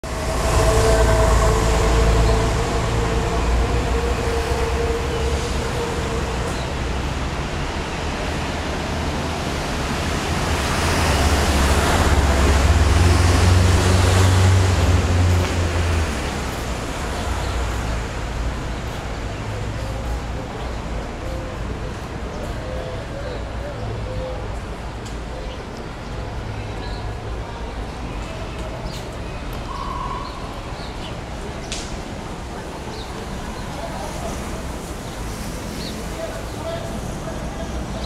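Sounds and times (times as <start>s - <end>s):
vehicle engines rumbling: 0.0s - 38.0s.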